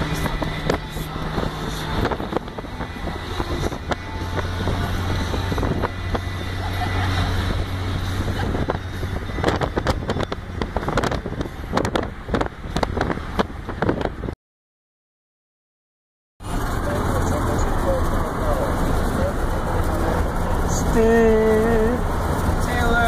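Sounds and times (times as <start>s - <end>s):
car engine and road noise: 0.0s - 14.4s, 16.4s - 23.0s
wind buffeting microphone: 0.0s - 14.4s.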